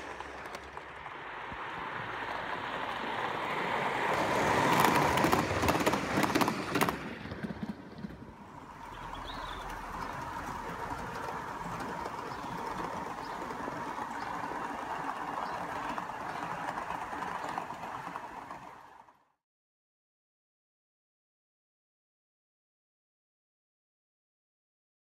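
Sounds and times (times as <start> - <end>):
model steam locomotive chatter: 0.0 - 19.2.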